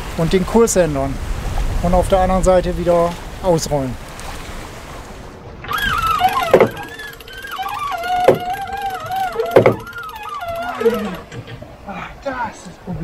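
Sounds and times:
furling gear squeal: 5.7 - 11.3
sharp knocks: 6.2 - 7.2, 8.0 - 10.4.

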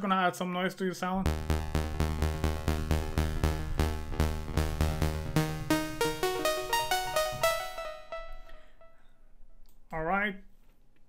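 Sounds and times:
deep synth bass: 1.3 - 8.3
saw-wave synth notes: 1.3 - 8.7.

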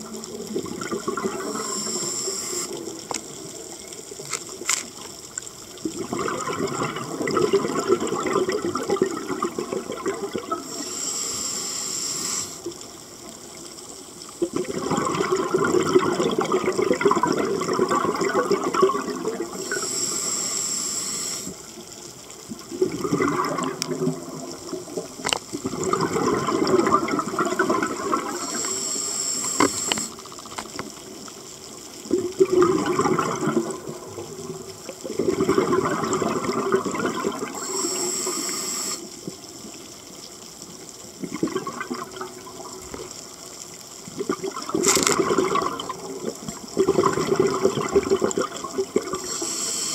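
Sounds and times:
exhaled bubbles: 0.0 - 4.6, 5.7 - 13.5, 14.3 - 30.9, 32.0 - 39.8, 41.1 - 43.4, 44.0 - 49.9
regulator hissing inhale: 1.4 - 2.8, 10.6 - 12.7, 19.6 - 21.7, 28.3 - 30.2, 37.6 - 39.2, 49.2 - 49.9.

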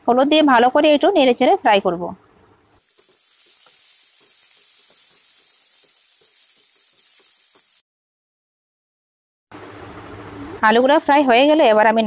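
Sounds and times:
potatoes sizzling in oil: 2.7 - 7.8.

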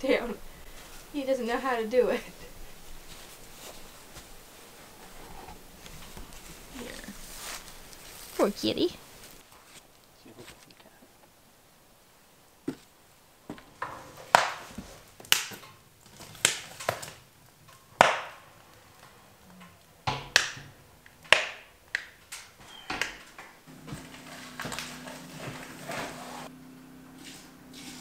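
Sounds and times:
sharp hard knocks: 20.1 - 21.7
low steady hum: 23.6 - 28.0.

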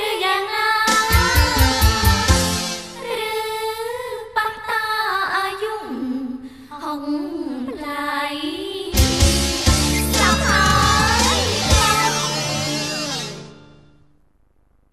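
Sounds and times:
woman singing pop song: 0.0 - 2.4, 3.0 - 9.0, 10.0 - 12.6
band playing a beat: 0.9 - 2.8, 9.0 - 13.6.

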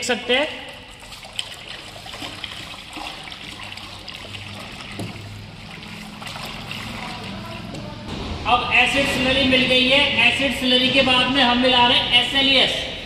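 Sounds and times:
slurry pouring and splashing: 0.6 - 7.7.

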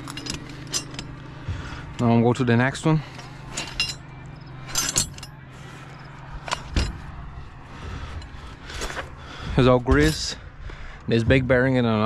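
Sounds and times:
metal tools clinking: 0.0 - 2.1, 2.8 - 7.1, 9.9 - 10.4
low hum: 0.0 - 12.0.

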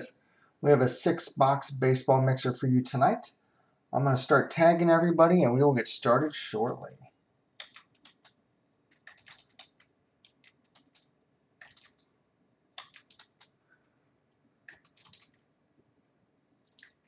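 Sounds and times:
keyboard typing: 7.6 - 13.6, 14.6 - 15.5, 16.6 - 17.0.

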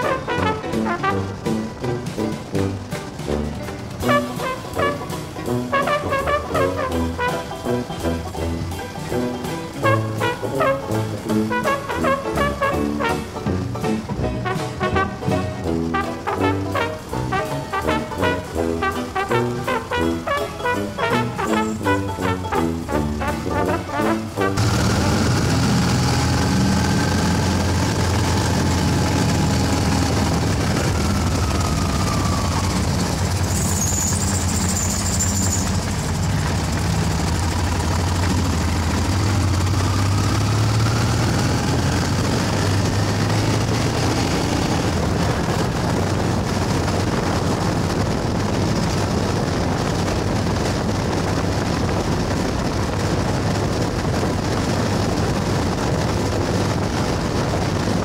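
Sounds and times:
motorcycle engine running: 0.0 - 58.0
high whistle: 33.4 - 35.8.

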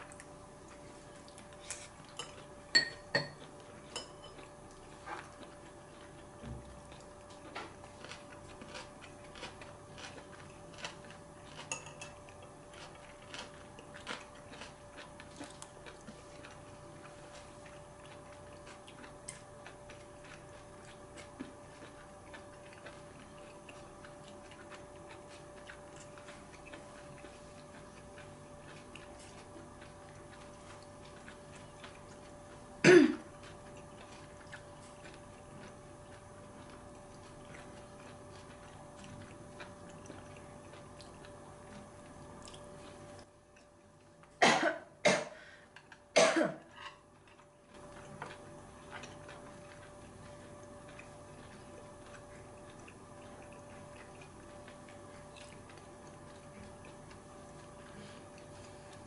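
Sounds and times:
steady hum: 0.0 - 59.0
chewing clicks: 4.4 - 32.7, 33.3 - 44.4, 47.2 - 59.0
person coughing: 32.8 - 33.3, 44.4 - 45.5, 46.2 - 46.7.

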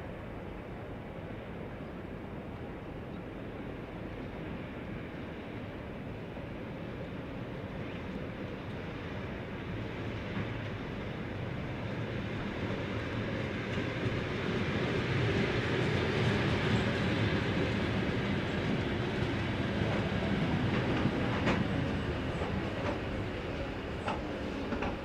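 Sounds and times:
train wheels rumbling on rail: 0.0 - 25.0.

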